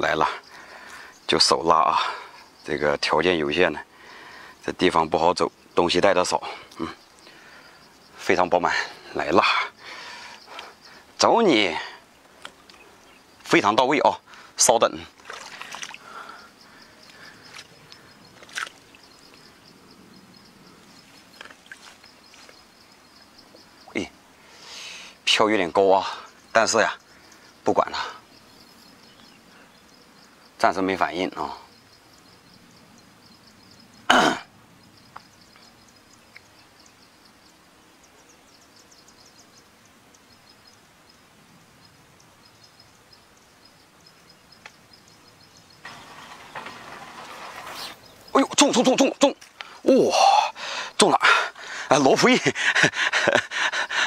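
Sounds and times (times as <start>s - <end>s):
rustling among reeds: 15.1s - 19.5s, 20.8s - 22.8s, 45.8s - 48.6s
person clearing throat: 34.1s - 34.5s.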